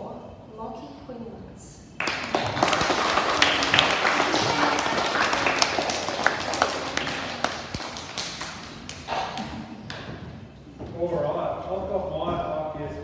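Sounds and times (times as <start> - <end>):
children clapping: 2.0 - 10.1.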